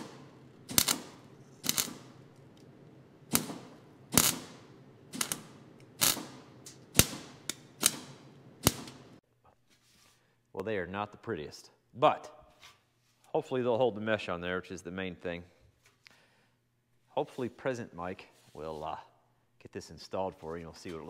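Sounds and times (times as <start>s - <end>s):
welder crackling bursts: 0.0s - 2.3s, 3.2s - 9.2s
sharp welding pops: 0.0s - 2.4s, 3.2s - 9.2s.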